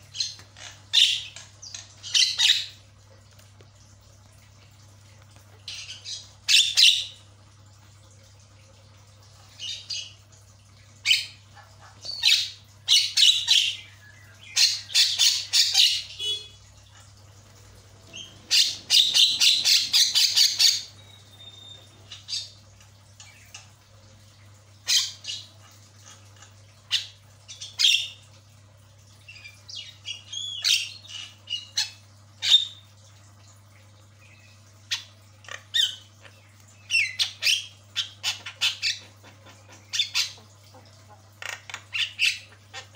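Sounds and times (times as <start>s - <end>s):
rapid rattling bird call: 17.9s - 22.5s
bird squawking and whistling: 18.1s - 22.5s.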